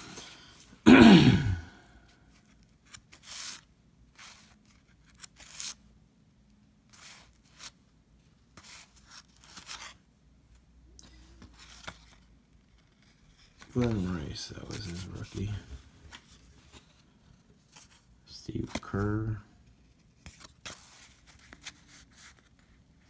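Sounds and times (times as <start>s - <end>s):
cardboard cards sliding and flipping: 2.4s - 5.8s, 6.9s - 7.8s, 8.5s - 10.0s, 11.0s - 22.8s.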